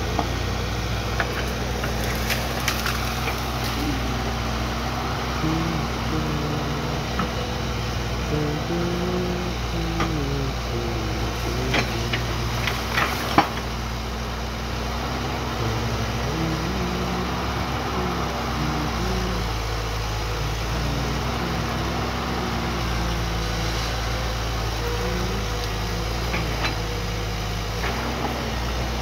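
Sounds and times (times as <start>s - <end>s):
excavator engine and hydraulics: 0.0s - 29.0s.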